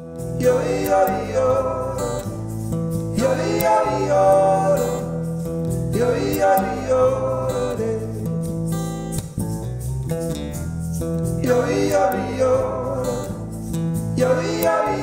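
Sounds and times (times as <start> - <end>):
bass guitar: 0.0 - 15.0
strummed acoustic guitar: 0.0 - 15.0
wordless singing: 0.3 - 8.4, 11.4 - 15.0.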